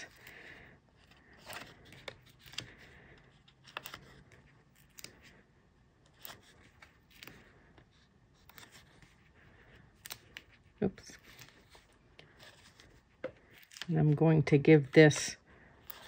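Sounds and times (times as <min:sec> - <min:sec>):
faint clicks and scrapes: 0:15.0 - 0:16.0.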